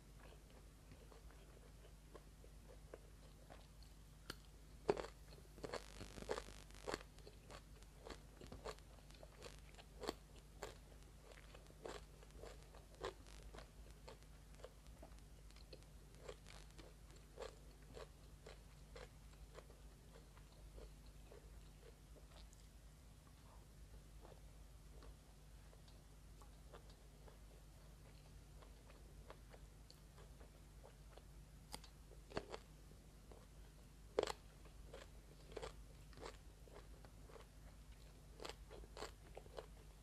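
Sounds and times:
crisp crunching chews: 0:00.2 - 0:22.7, 0:34.2 - 0:40.0.

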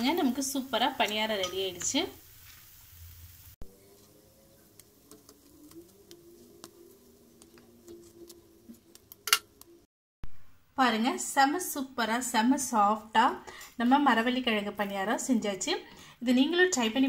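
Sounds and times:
food ticking on cast-iron pan: 0:01.0 - 0:02.0, 0:04.6 - 0:09.8.

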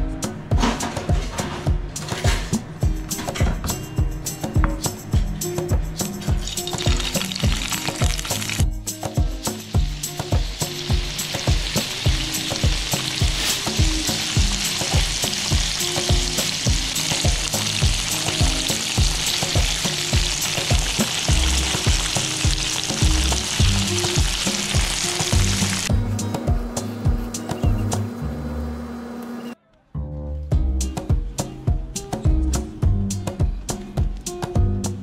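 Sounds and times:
background music with beat: 0:00.0 - 0:28.2, 0:30.5 - 0:35.0
tofu sizzling in oil: 0:06.4 - 0:08.6, 0:09.5 - 0:25.9.

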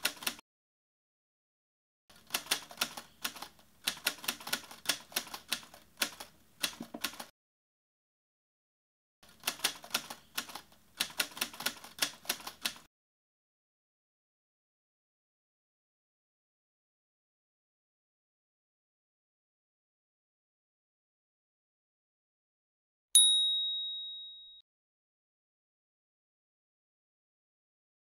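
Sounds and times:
typewriter keystrokes: 0:00.0 - 0:00.4, 0:02.2 - 0:07.3, 0:09.3 - 0:12.9.

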